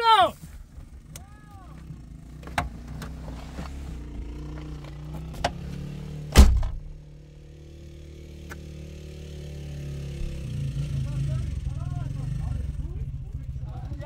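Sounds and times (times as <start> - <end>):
car engine idling hum: 0.0 - 14.0
car door latch click: 6.3 - 7.0
car door slamming shut: 6.3 - 7.0.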